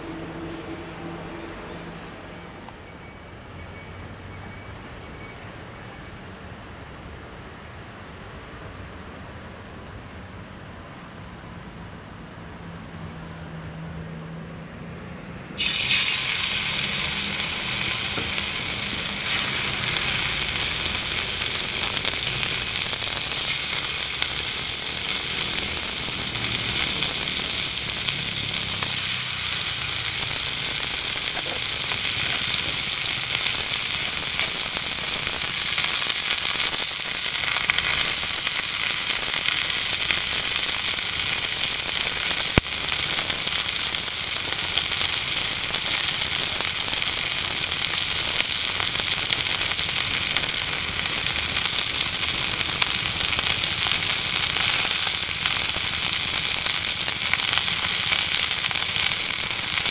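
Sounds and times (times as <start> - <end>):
food sizzling in a pan: 15.6 - 59.9.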